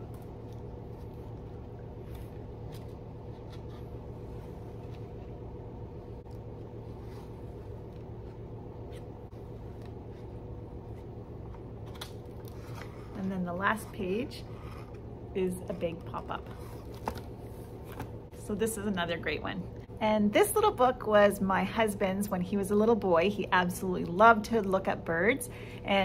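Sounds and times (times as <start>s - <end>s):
book pages turning: 0.0s - 5.4s, 6.2s - 13.8s, 16.2s - 18.2s
low room hum: 0.0s - 26.0s.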